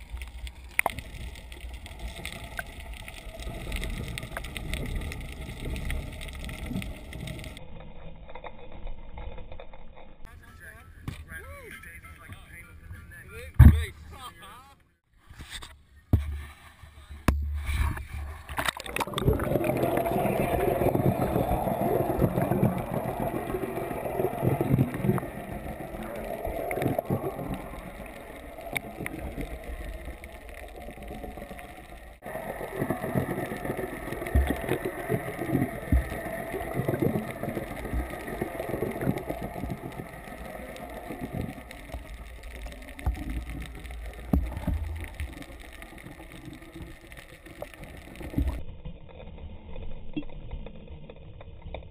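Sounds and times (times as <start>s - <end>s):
underwater rushing water: 0.0s - 7.6s, 17.5s - 48.7s.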